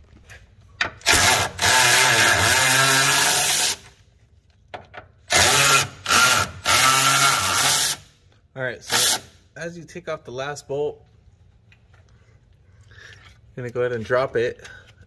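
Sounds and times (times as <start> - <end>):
power tool spinning bolts: 1.0 - 3.9, 5.2 - 8.1, 8.8 - 9.4.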